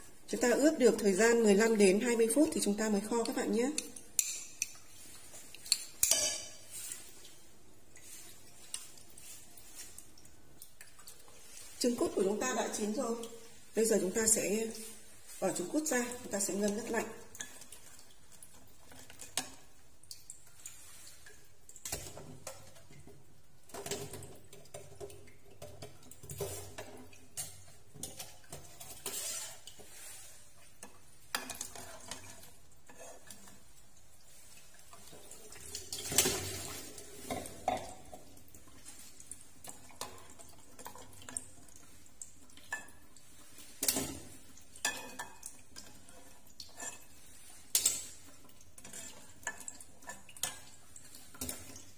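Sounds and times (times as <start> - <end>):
metal ladle clinking against pot: 5.7 - 6.6.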